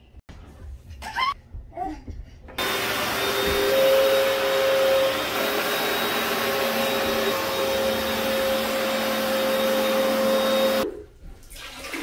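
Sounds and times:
carpet cleaner motor humming: 2.6 - 10.8.

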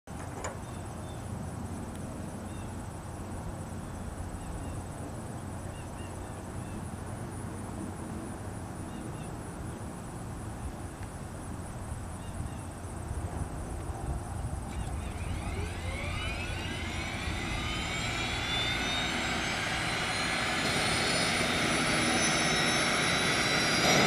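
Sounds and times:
thin high buzz: 14.6 - 24.0
low rumble: 14.7 - 24.0.

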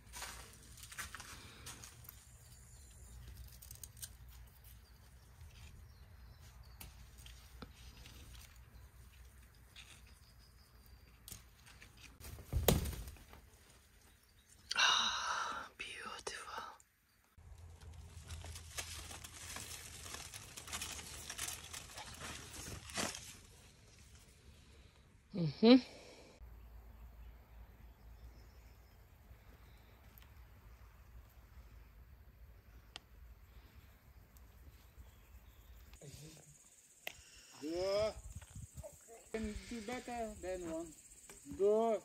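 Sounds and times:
hand handling plants: 0.0 - 12.6, 17.4 - 24.4
leaves and vines rustling: 0.0 - 14.9, 17.4 - 24.9.

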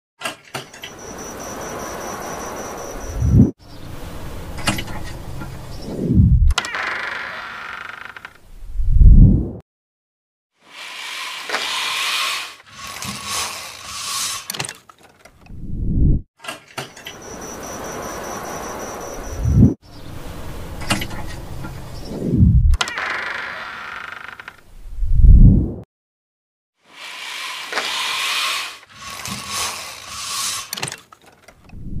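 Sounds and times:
low rumble: 3.0 - 6.5, 8.6 - 9.6, 15.5 - 16.2, 18.6 - 22.8, 24.8 - 25.8
cord mechanism ratcheting: 10.8 - 15.5, 27.0 - 31.8
blind slats rustling: 10.9 - 15.4, 27.2 - 31.7.

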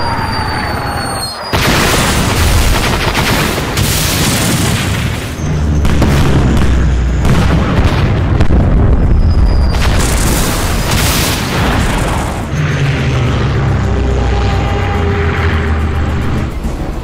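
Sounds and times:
explosions: 1.5 - 13.8
gunfire: 1.6 - 8.5
heavy low rumble: 4.4 - 17.0.

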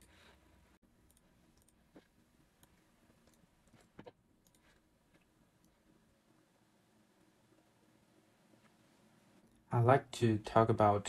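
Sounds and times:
faint clicks: 1.1 - 5.8.

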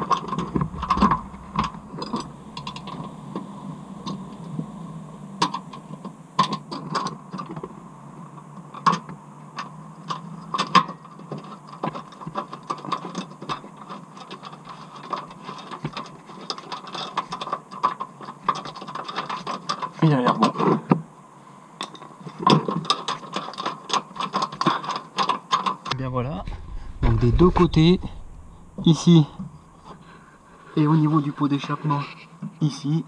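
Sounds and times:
faint steady hum: 0.0 - 13.6, 25.8 - 33.0.

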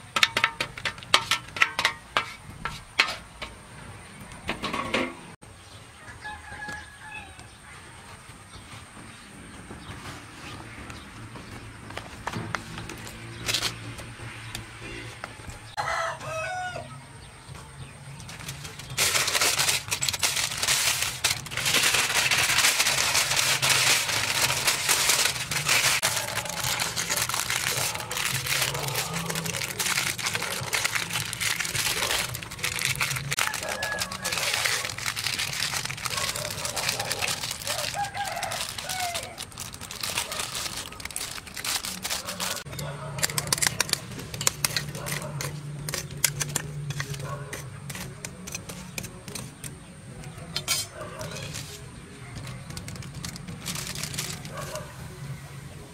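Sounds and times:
rooster crowing: 6.0 - 7.5, 15.8 - 17.0, 33.3 - 34.9, 37.0 - 39.5
aluminium foil crinkling: 18.2 - 55.0.

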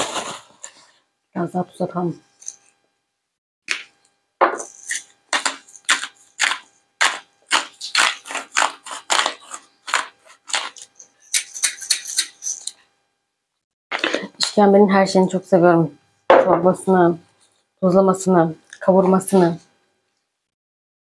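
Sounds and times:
salt grinder crunching: 0.0 - 0.6, 4.6 - 12.8.

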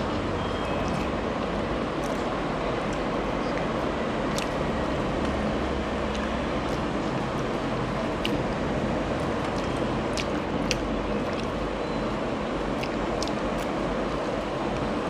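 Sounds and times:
rushing background noise: 0.0 - 15.0
eating: 0.4 - 11.8
fingers squishing food: 0.4 - 15.0.

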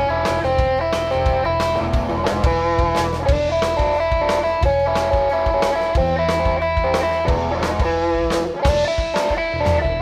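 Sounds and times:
drum kit with cymbals: 0.0 - 10.0
electric bass: 0.0 - 10.0
electric guitar melody: 0.0 - 10.0.

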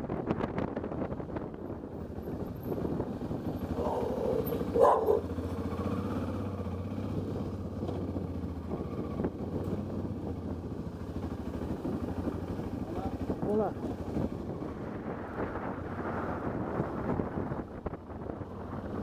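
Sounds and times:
motorcycle engine running: 1.5 - 15.7.

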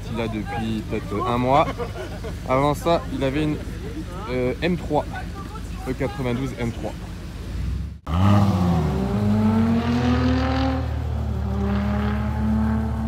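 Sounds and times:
car engine pulling away: 0.9 - 13.0.

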